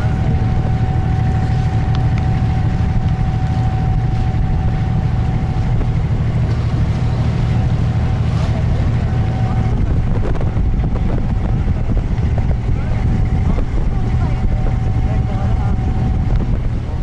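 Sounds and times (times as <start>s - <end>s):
boat engine droning: 0.0s - 17.0s
thin steady whine: 0.0s - 17.0s.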